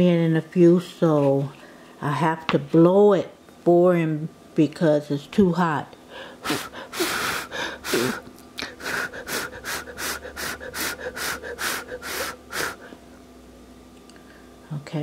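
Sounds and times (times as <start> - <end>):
person blowing short puffs: 6.4 - 13.0.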